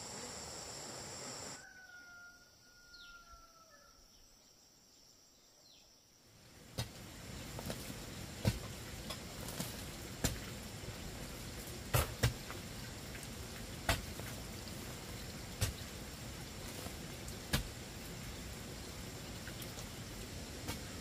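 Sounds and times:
steady background hiss: 0.0s - 21.0s
hoe chopping into hard soil: 7.6s - 10.4s, 11.9s - 12.5s, 13.9s - 14.1s, 17.5s - 17.7s.

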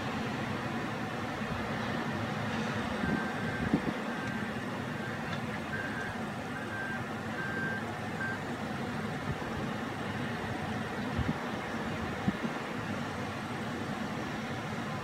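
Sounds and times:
diesel engine under load: 0.0s - 15.0s
reverse alarm beeping: 3.0s - 8.4s.

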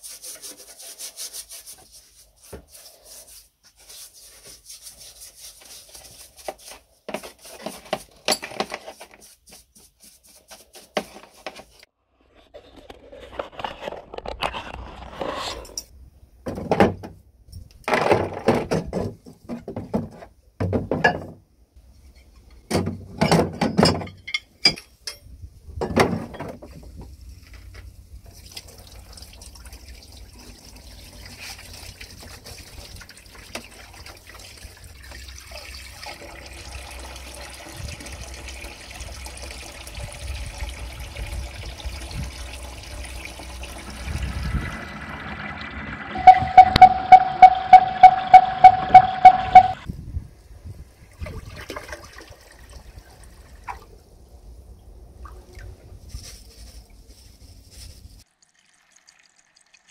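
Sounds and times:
stiff brush scrubbing rusty metal: 0.0s - 11.9s
hose water hissing over metal: 28.2s - 47.2s
loud short noise bursts: 46.1s - 49.8s.

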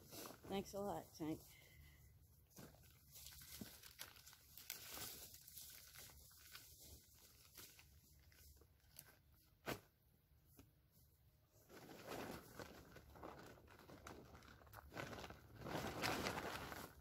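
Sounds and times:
rustling and crinkling of gear: 0.0s - 10.0s, 11.5s - 17.0s.

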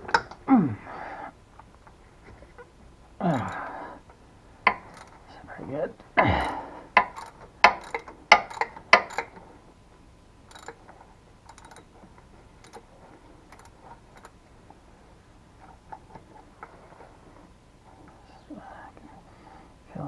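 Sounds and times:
ratchet wrench clicking: 7.0s - 9.3s, 10.5s - 10.8s, 11.4s - 11.9s, 12.6s - 12.8s.

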